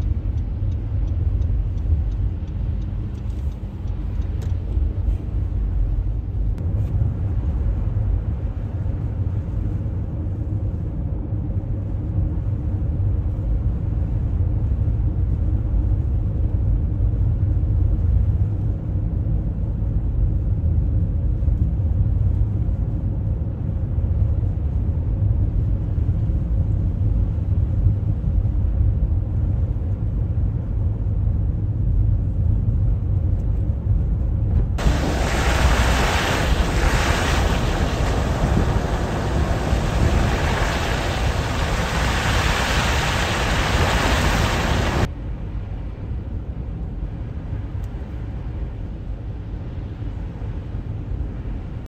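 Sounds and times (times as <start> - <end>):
tyres and engine rumbling: 34.4 - 45.1.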